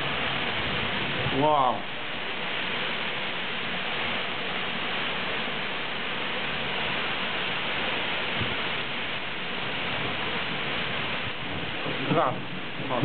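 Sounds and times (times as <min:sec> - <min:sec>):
heavy rain pouring: 0:00.0 - 0:13.0.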